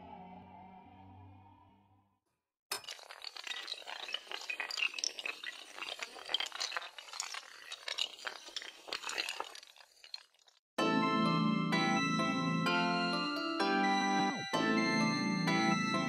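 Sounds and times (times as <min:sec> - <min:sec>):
dominoes clattering: 0:02.7 - 0:10.6.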